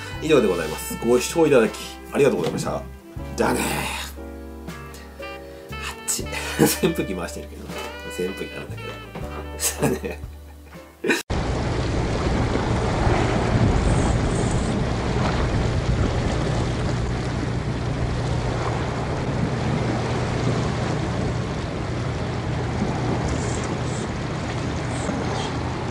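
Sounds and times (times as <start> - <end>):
sea washing against rocks: 11.3 - 25.9
wind buffeting microphone: 11.3 - 25.9
steady low hum: 11.6 - 25.9.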